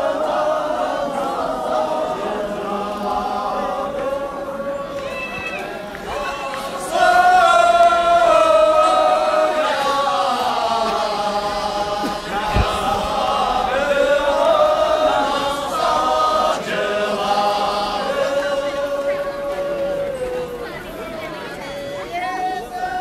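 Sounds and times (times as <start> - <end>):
group singing folk song in unison: 0.0 - 23.0
dull thump: 12.1 - 13.2.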